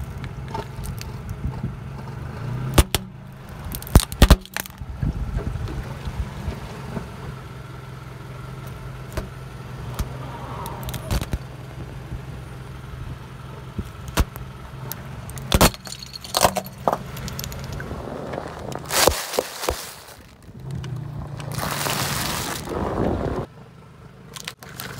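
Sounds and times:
car engine running slowly: 0:00.0 - 0:24.9
plastic cracking and rattling: 0:03.7 - 0:04.8.

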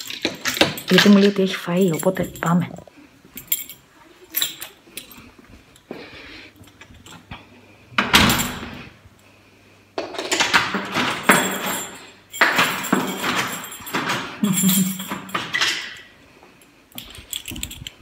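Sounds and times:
handling knocks and clicks: 0:00.0 - 0:05.2, 0:16.9 - 0:18.0.

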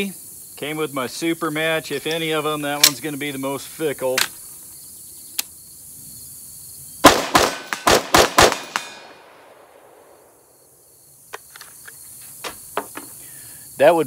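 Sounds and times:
rifle shots in rapid succession: 0:07.0 - 0:10.2.

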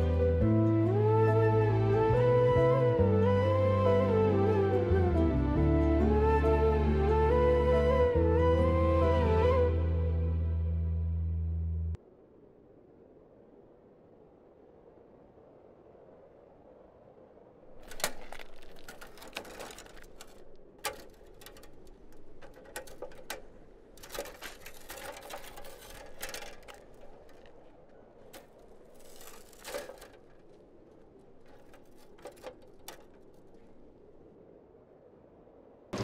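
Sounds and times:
bicycle clicking and rattling: 0:17.8 - 0:33.8.

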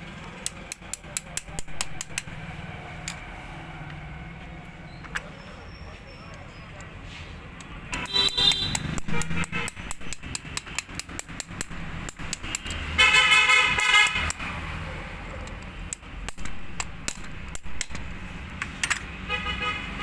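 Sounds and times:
low traffic rumble: 0:00.0 - 0:20.0
metallic clicks and taps: 0:00.3 - 0:05.4, 0:06.3 - 0:13.0, 0:13.7 - 0:14.6, 0:15.3 - 0:19.1
vehicle horn honking: 0:07.9 - 0:09.9, 0:12.8 - 0:14.3, 0:19.2 - 0:20.0.

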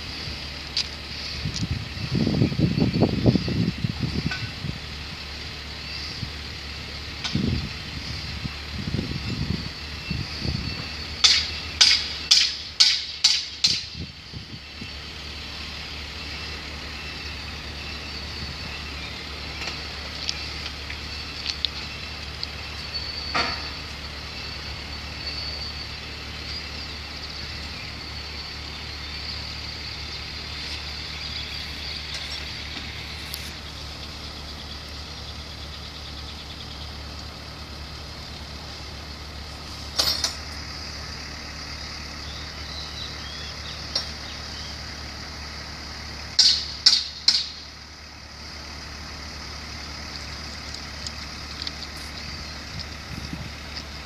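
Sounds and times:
vehicle engine idling: 0:00.0 - 0:54.0
sharp metal knocks: 0:11.2 - 0:14.0, 0:46.4 - 0:47.6.

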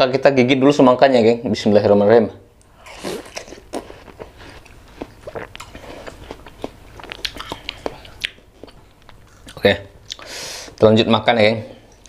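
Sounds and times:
watermelon chewing crunches: 0:02.7 - 0:10.2.

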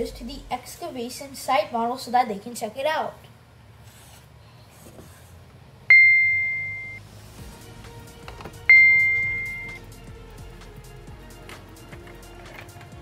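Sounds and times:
quiet background music: 0:00.0 - 0:01.5, 0:07.0 - 0:13.0.

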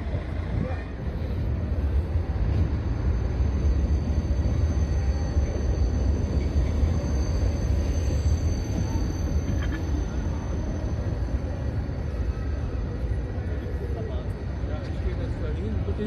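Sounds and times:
tram high whine: 0:00.0 - 0:16.0
tram rumbling on track: 0:00.0 - 0:16.0.

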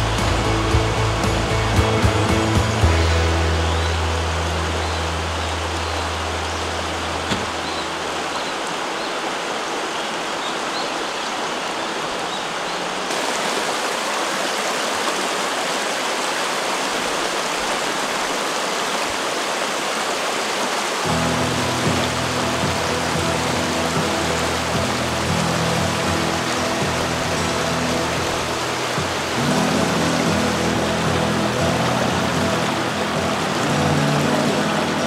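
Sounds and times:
low sustained music notes: 0:00.0 - 0:09.2, 0:21.1 - 0:35.0
mountain stream rushing: 0:00.0 - 0:35.0.

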